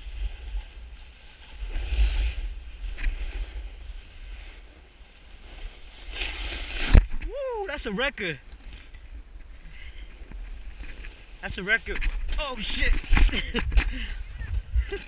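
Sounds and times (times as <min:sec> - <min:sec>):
snowboard scraping over snow: 0:00.0 - 0:08.9, 0:10.1 - 0:15.0
wind buffeting microphone: 0:10.2 - 0:15.0.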